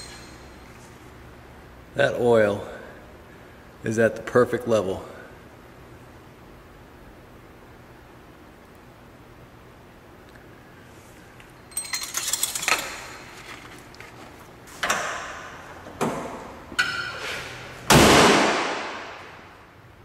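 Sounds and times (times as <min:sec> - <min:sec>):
metal clinks and clunks: 0:00.0 - 0:00.6, 0:11.6 - 0:13.4
steel hood slamming shut: 0:17.8 - 0:19.2.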